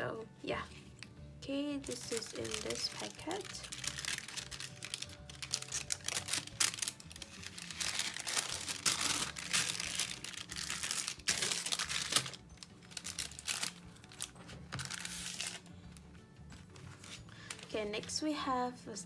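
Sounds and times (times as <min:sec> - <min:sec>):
plastic packet crinkling: 0:01.8 - 0:15.7, 0:16.8 - 0:17.8.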